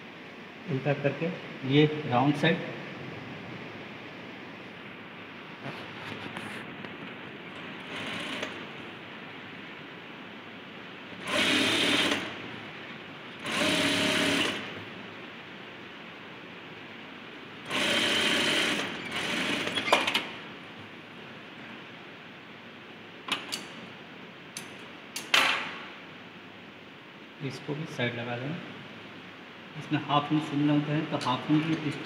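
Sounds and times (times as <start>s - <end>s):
sewing machine stitching: 7.6s - 8.7s, 11.2s - 12.3s, 13.4s - 14.7s, 17.7s - 20.3s.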